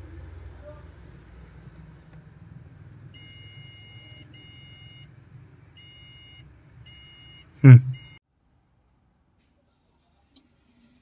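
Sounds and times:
multimeter continuity beeping: 3.2 - 5.1, 5.8 - 8.2.

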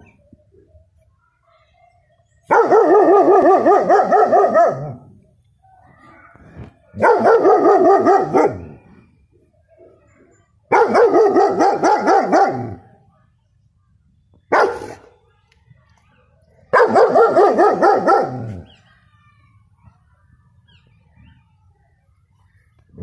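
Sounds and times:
dog barking rapidly: 2.5 - 5.0, 7.0 - 8.7, 10.7 - 12.8, 14.5 - 15.0, 16.7 - 18.6.

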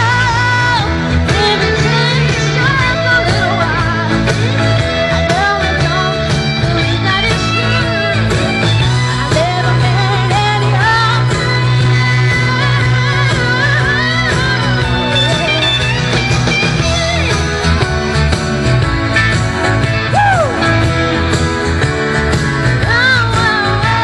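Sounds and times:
woman singing into microphone: 0.0 - 15.8, 22.8 - 24.0
backing music: 0.0 - 24.0.

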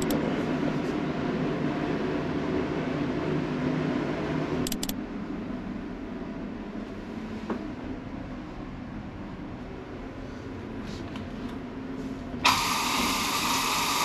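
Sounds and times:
quick clicks: 0.0 - 0.2, 4.7 - 5.0
low machinery drone: 0.0 - 14.0.

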